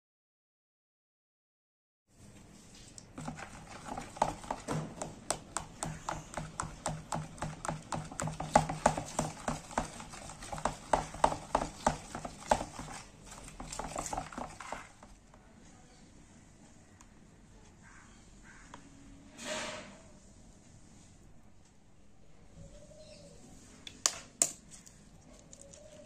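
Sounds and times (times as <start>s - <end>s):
spoon beating batter in plastic bowl: 2.8s - 15.4s, 23.9s - 26.0s.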